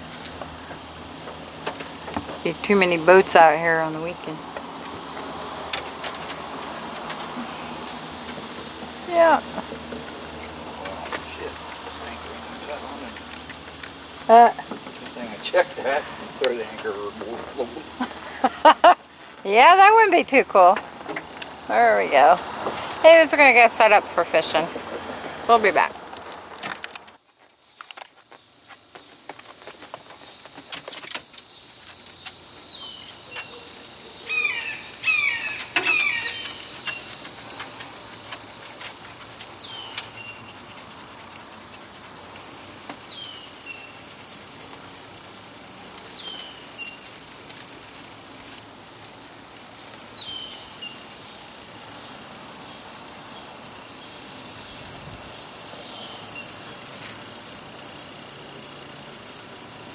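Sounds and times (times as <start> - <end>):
high-pitched insect chorus: 0.0 - 59.9
bird chirps: 31.5 - 37.6
bird call falling in pitch: 34.3 - 36.6.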